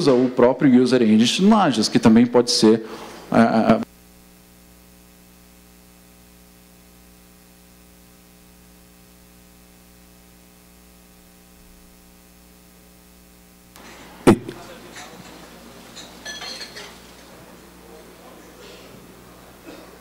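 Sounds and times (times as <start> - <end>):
electrical mains hum: 0.0 - 20.0.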